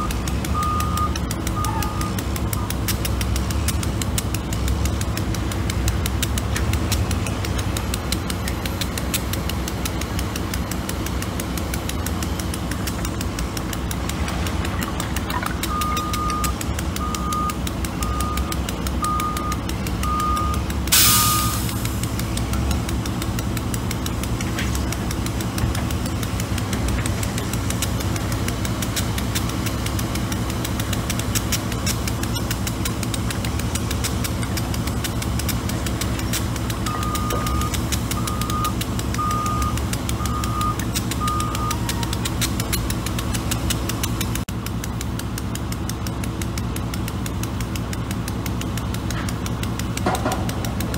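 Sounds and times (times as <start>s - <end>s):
reversing alarm beeping: 0.0s - 2.7s, 15.4s - 21.8s, 36.8s - 42.2s
diesel engine running: 0.0s - 50.9s.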